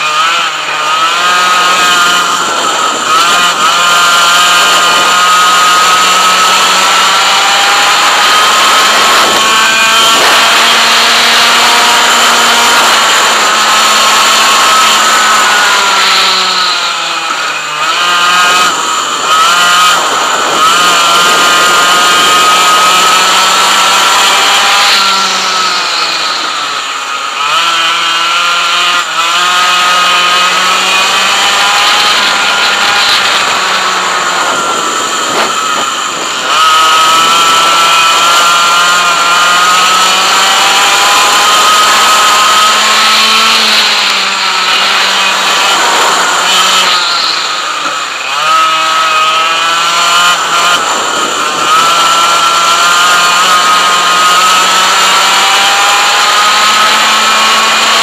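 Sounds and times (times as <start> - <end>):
kart engine at full throttle: 0.0 - 58.0.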